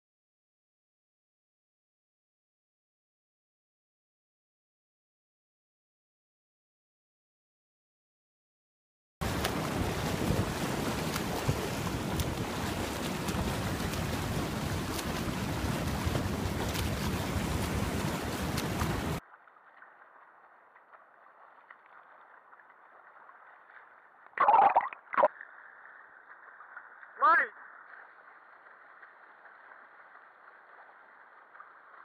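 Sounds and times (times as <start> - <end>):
wind buffeting microphone: 9.2 - 19.2
swimmer splashing: 9.2 - 24.8
muffled water sound: 9.2 - 32.0.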